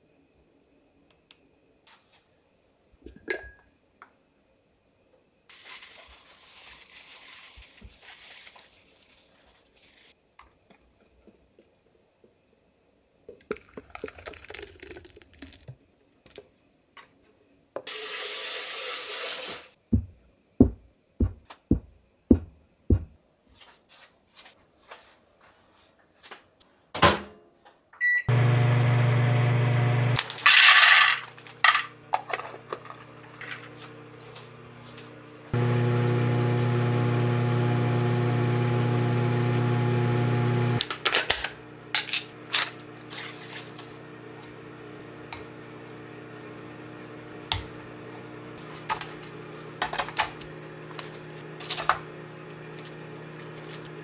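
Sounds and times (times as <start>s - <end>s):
glass bowls clinking: 3.1s - 3.7s
dull knocks: 20.0s - 23.2s.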